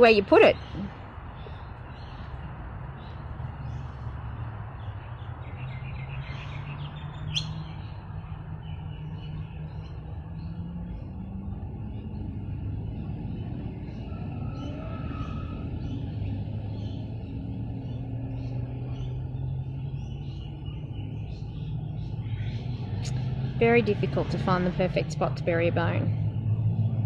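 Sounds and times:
small birds chirping: 0.0 - 27.0
sharp rising bird chirp: 5.0 - 11.2
steady low rumble: 6.9 - 27.0.

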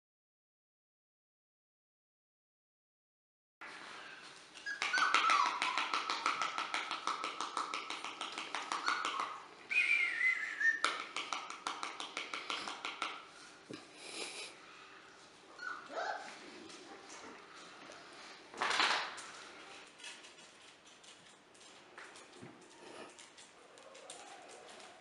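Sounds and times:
puppies whining: 4.6 - 6.2, 8.7 - 11.0, 15.5 - 16.5, 22.6 - 25.0.

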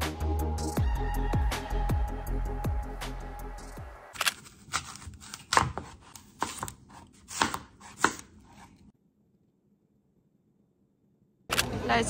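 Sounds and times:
knife slicing apple on board: 4.3 - 8.9.

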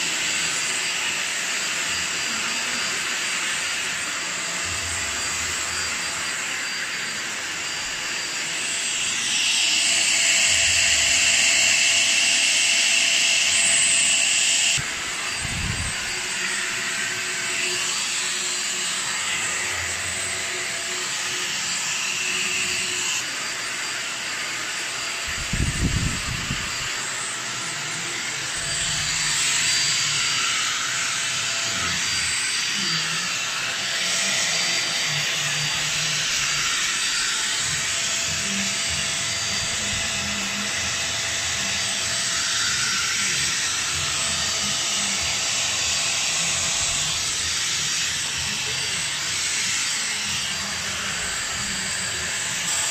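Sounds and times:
vacuum cleaner whine: 0.0 - 52.9.

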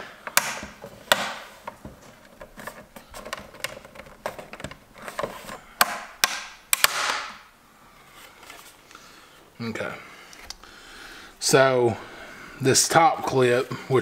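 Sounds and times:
plastic clips snapping: 5.8 - 7.4.

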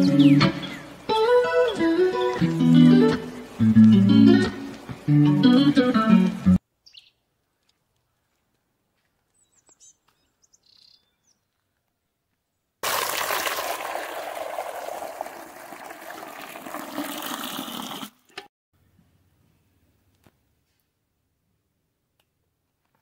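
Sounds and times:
faint bird chirps: 6.8 - 7.3
water pouring into steel basin: 12.8 - 18.2.

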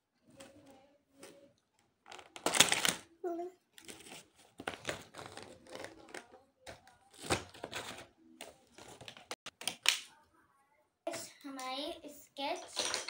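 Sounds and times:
crayons rattling in plastic case: 3.8 - 8.1, 12.6 - 13.0.

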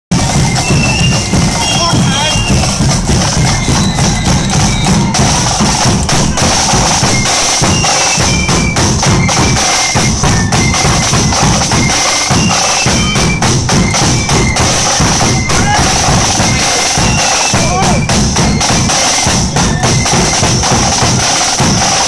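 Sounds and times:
marching flute band: 0.1 - 22.0
side drums and bass drum: 0.1 - 22.0
shrill flute melody: 0.2 - 22.0.

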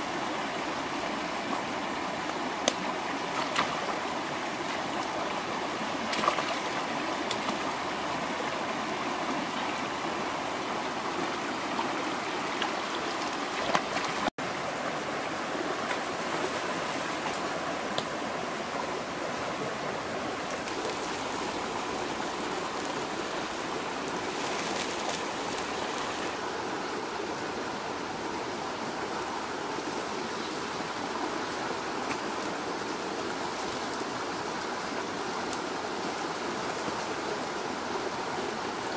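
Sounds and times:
river rushing over rocks: 0.0 - 38.9
small water splashes: 2.6 - 4.0, 5.9 - 7.8, 12.6 - 14.3.

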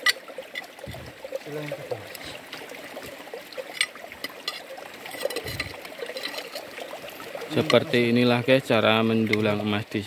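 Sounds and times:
stream water trickling: 0.0 - 10.0.

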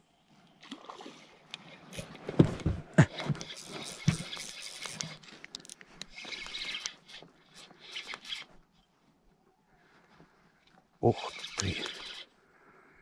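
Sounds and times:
small clicks: 3.2 - 8.8.

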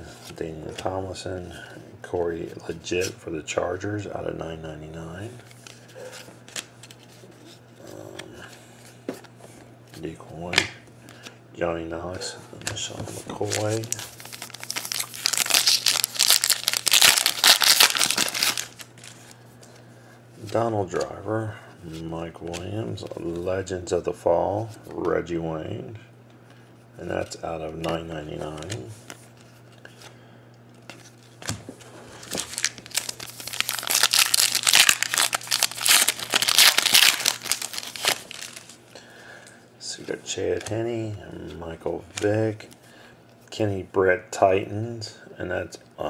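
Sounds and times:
foil wrapper crinkling: 13.3 - 19.4, 32.1 - 38.8.

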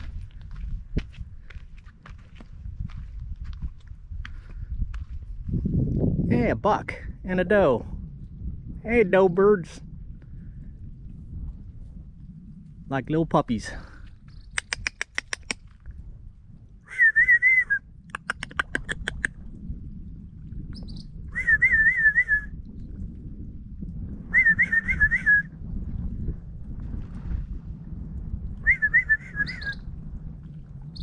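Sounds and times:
wind rumble on microphone: 0.0 - 31.0
tongue clicks: 14.3 - 15.8, 17.3 - 19.5
person whistling warbling note: 16.9 - 17.8, 21.4 - 22.5, 24.3 - 25.5, 28.6 - 29.8.

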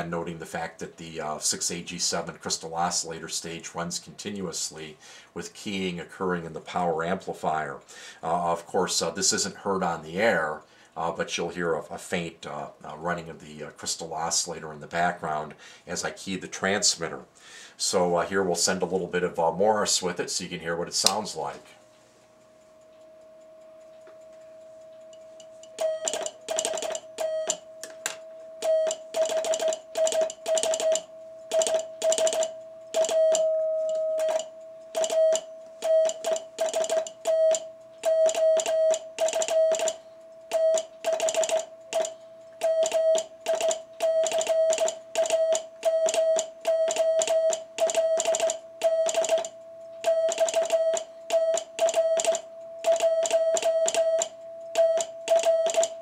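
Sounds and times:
faint steady oscillator tone: 18.2 - 56.0
morse code tone: 23.1 - 56.0.

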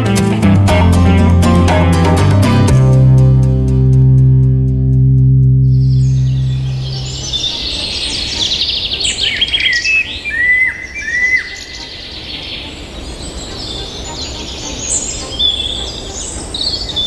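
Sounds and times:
songbirds chirping and trilling: 5.7 - 17.0
whistled bird notes: 5.7 - 17.0.

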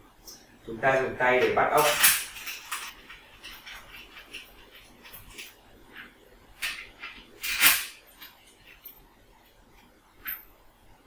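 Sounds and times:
metal parts clattering: 1.4 - 9.0.

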